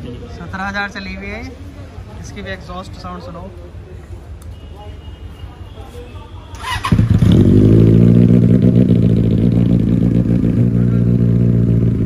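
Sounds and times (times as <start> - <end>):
motorcycle engine running: 6.6 - 12.0.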